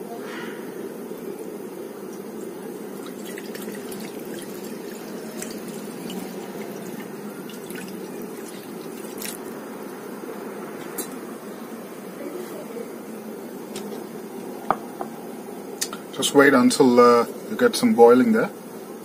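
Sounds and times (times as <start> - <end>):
steady low hum: 0.0 - 19.0
broth pouring and splashing: 2.8 - 9.6.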